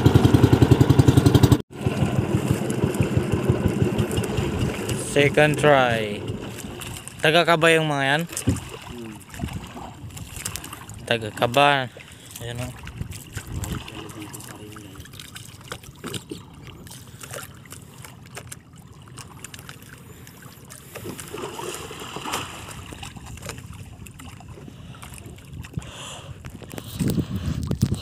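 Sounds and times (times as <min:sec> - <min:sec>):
water lapping against boat hull: 0:01.8 - 0:28.0
light knocks and clicks on boat: 0:08.3 - 0:21.4, 0:22.8 - 0:27.9.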